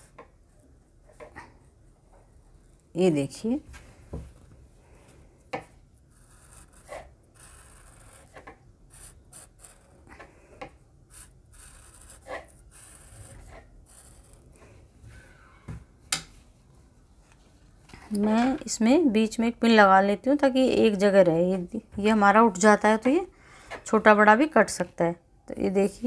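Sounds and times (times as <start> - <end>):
pen scratching on paper: 6.1 - 10.1, 11.1 - 14.7.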